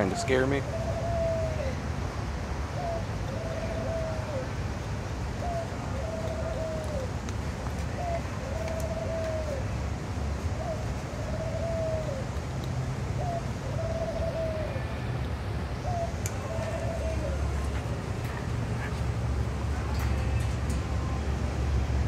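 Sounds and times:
dove cooing: 0:00.0 - 0:01.8, 0:02.8 - 0:04.5, 0:05.4 - 0:07.2, 0:07.9 - 0:09.8, 0:10.6 - 0:12.3, 0:13.2 - 0:15.1, 0:15.8 - 0:19.2.

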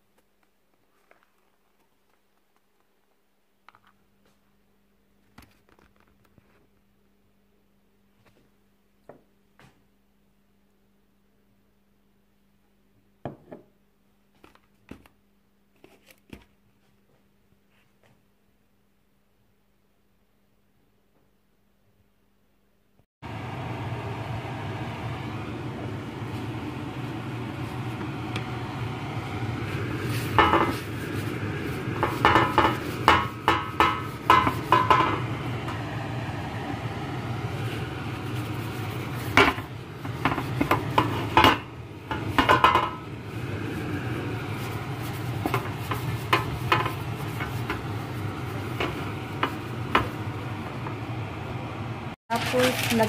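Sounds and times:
steady low hum: 0:23.2 - 0:52.2.

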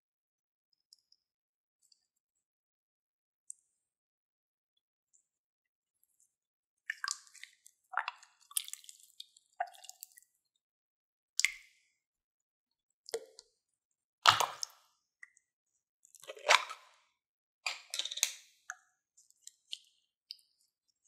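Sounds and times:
slime squelching: 0:16.2 - 0:16.9.

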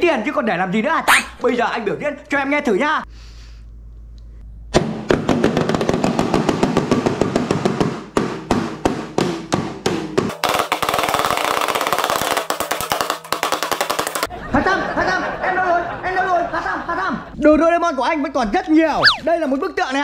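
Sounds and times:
toy drums beaten rapidly: 0:05.3 - 0:14.3.

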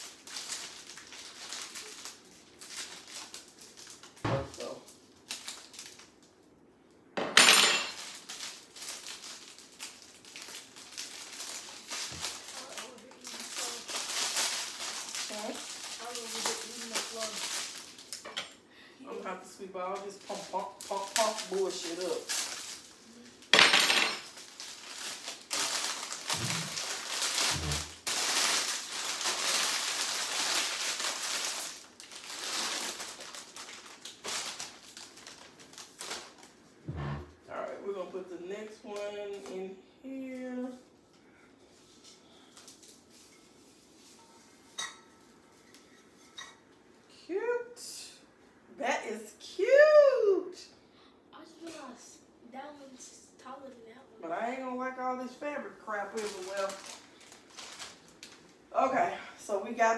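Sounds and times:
plastic wrapping crinkling: 0:00.0 - 0:06.5, 0:07.8 - 0:18.3, 0:19.8 - 0:37.2, 0:41.6 - 0:46.4, 0:55.2 - 0:58.7
dry grass stems rustling: 0:08.0 - 0:18.2, 0:20.2 - 0:23.1, 0:24.2 - 0:37.1
dried grass plumes rustling: 0:24.4 - 0:37.2.

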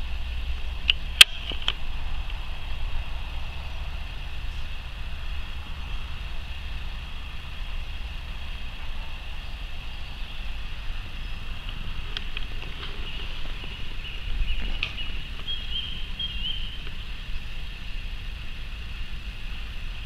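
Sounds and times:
truck engine droning: 0:00.0 - 0:20.0.

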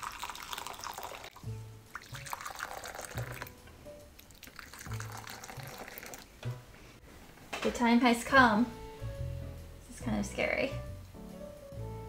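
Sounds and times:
hot water pouring into bowls: 0:00.0 - 0:03.5, 0:04.2 - 0:06.3
soft background music: 0:00.1 - 0:12.0.

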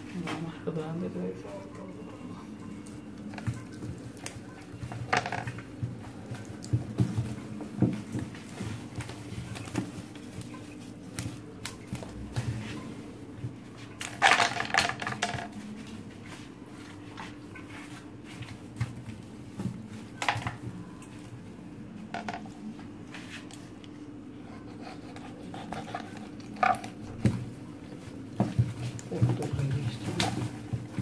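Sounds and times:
low steady hum: 0:00.0 - 0:31.0
clatter in a steel sink: 0:14.0 - 0:15.5.

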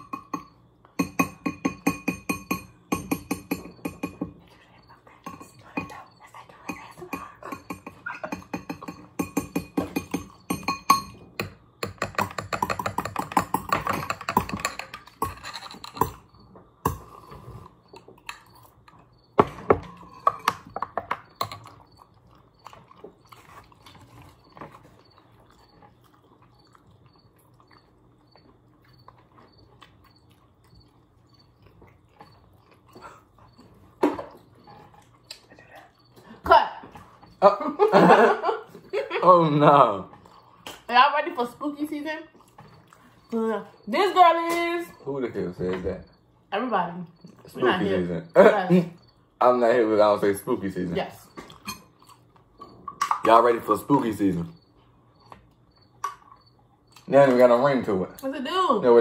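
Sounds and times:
metal spoon clinking against glass: 0:00.0 - 0:04.2, 0:06.7 - 0:16.3
close-up eating sounds: 0:03.6 - 0:44.0, 0:50.2 - 0:58.2.

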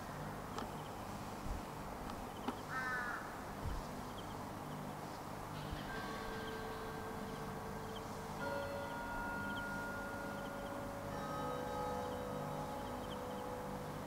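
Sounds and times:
steady high tones: 0:04.3 - 0:14.0.

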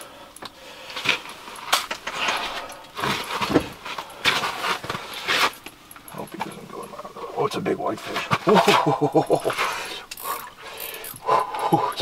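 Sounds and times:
fabric rustling and handling noise: 0:00.9 - 0:06.7.

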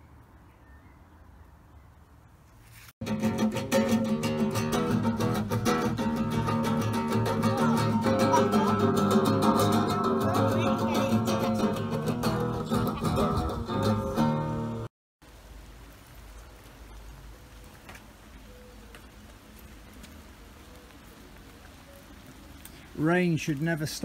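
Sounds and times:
acoustic guitar music: 0:03.0 - 0:14.9.

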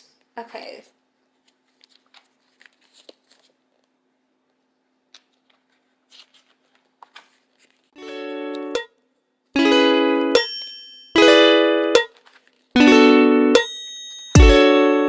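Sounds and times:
calendar pages flipping: 0:01.4 - 0:03.9, 0:05.1 - 0:08.6, 0:12.0 - 0:12.8
background music with plucked notes: 0:08.0 - 0:09.0, 0:09.6 - 0:12.2, 0:12.8 - 0:15.0.

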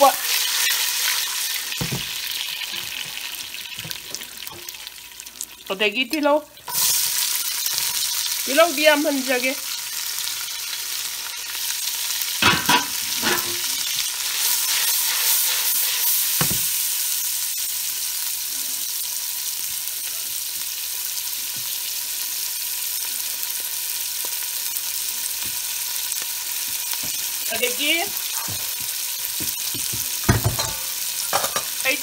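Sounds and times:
onions sizzling in hot oil: 0:00.0 - 0:32.0
knocks on a pot: 0:29.4 - 0:30.8.

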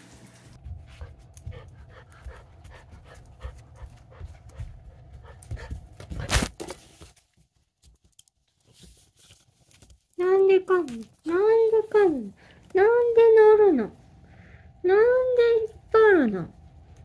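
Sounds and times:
puppy panting: 0:00.6 - 0:06.3.

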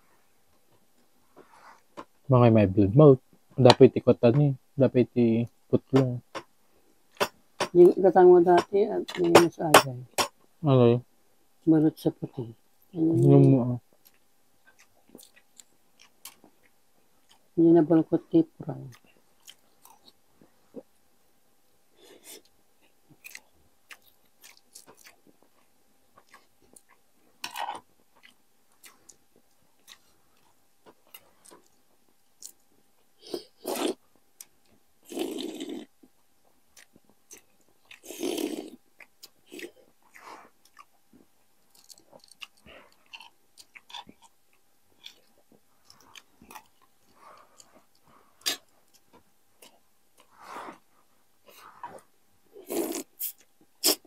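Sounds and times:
food being chewed: 0:14.0 - 0:17.6, 0:18.9 - 0:20.9, 0:22.0 - 0:50.9.

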